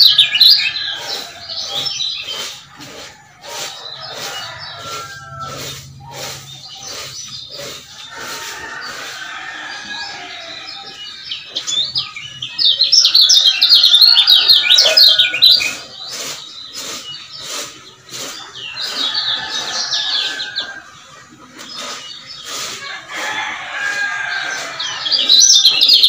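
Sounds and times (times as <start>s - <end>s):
bird chattering high chirps: 0.0s - 9.0s, 10.1s - 20.7s, 24.4s - 26.0s.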